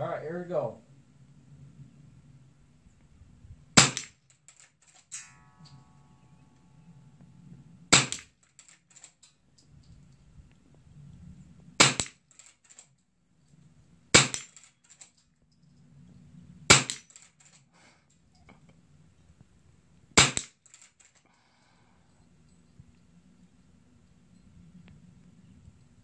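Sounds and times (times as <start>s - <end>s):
rifle shots: 3.8s - 4.2s, 7.9s - 8.4s, 11.8s - 12.2s, 14.1s - 14.6s, 16.7s - 17.2s, 20.2s - 20.6s.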